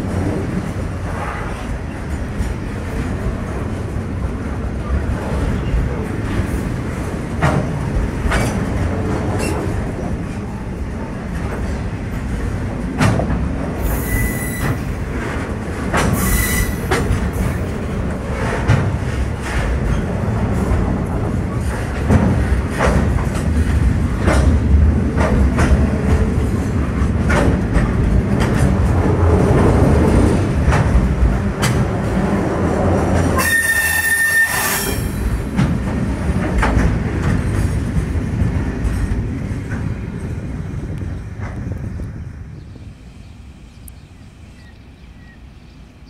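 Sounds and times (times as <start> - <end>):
wheels clacking over rail joints: 0.0 - 42.2
train rumbling past: 0.0 - 46.0
high wheel squeal: 13.8 - 14.9, 16.2 - 16.9, 33.4 - 35.3.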